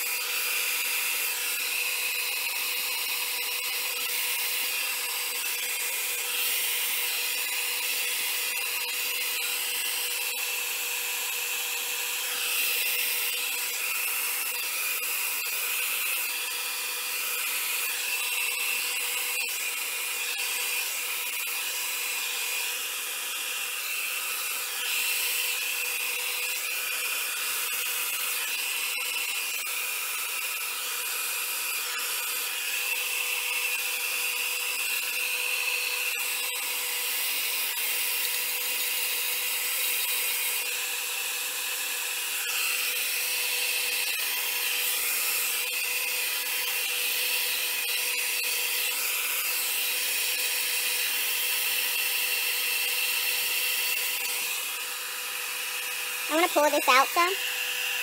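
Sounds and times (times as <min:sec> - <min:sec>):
blow dryer running: 0:00.0 - 0:28.0, 0:53.8 - 0:58.0.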